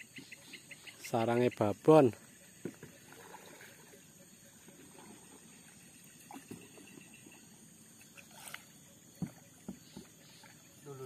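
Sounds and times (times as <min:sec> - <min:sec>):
high insect drone: 0:00.0 - 0:11.0
canoe knocks and water sounds: 0:02.6 - 0:03.7, 0:08.4 - 0:10.6.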